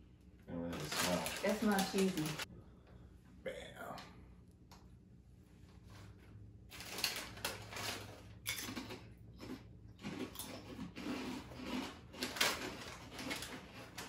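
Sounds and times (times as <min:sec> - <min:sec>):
chip bag crinkling: 0:00.7 - 0:02.5, 0:06.7 - 0:14.0
potato chips crunching: 0:06.7 - 0:14.0.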